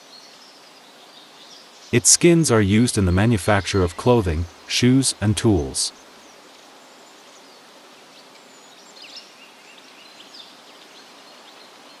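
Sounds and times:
steady hiss: 1.7 - 8.6.

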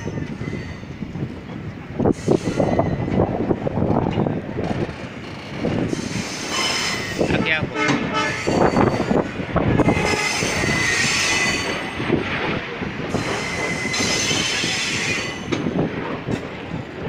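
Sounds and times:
train wheels rumbling on rails: 0.0 - 17.0
high wheel squeal: 5.2 - 7.6, 9.8 - 11.9, 13.1 - 15.6.

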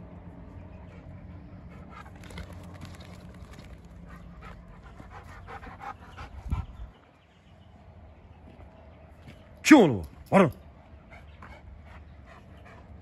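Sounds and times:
dog panting fast: 0.7 - 7.1, 11.0 - 13.0.

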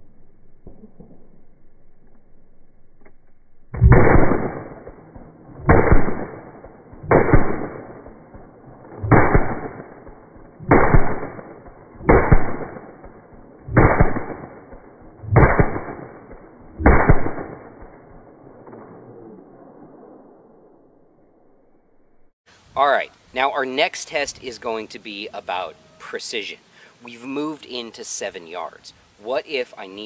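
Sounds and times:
gunshots with echo: 3.8 - 8.4, 9.0 - 18.0.

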